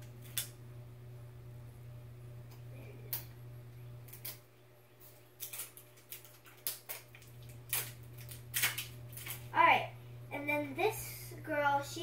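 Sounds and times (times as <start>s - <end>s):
steady low hum: 0.0s - 12.0s
plastic wrapping crinkling: 5.0s - 9.6s.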